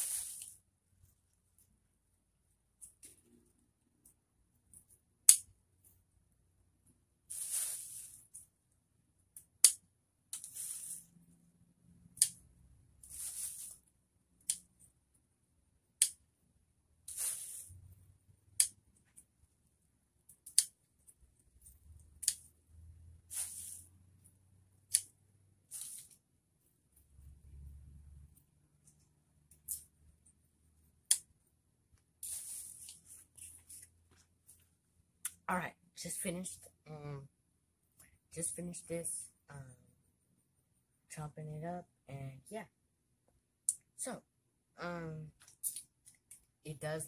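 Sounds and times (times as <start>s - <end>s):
rustling leaves being handled: 0.0s - 0.6s, 7.3s - 8.4s, 10.4s - 11.2s, 13.0s - 13.9s, 17.1s - 17.9s, 23.3s - 23.9s, 25.6s - 26.2s, 32.2s - 33.8s
scissors snipping stems: 22.0s - 22.5s.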